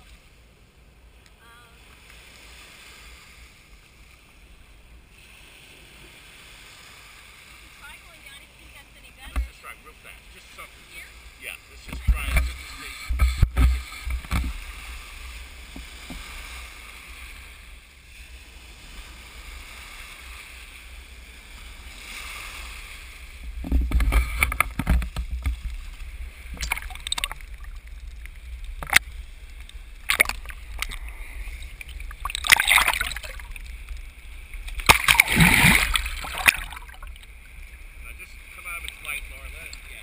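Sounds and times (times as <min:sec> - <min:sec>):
low water rumble: 0:00.0 - 0:40.0
surf lapping and sloshing: 0:00.0 - 0:40.0
waves splashing: 0:00.0 - 0:40.0.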